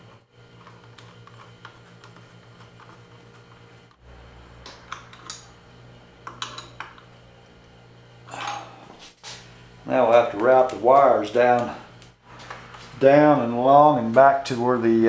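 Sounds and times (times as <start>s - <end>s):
electrical hum: 0.0s - 15.0s
tools clicking and tapping: 4.6s - 5.5s, 6.2s - 7.1s.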